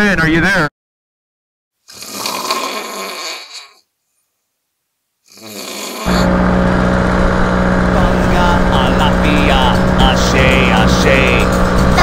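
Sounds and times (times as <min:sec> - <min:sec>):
man snoring loudly: 0:01.9 - 0:03.8, 0:05.3 - 0:06.8, 0:07.8 - 0:12.0
paramotor engine drone: 0:06.1 - 0:12.0.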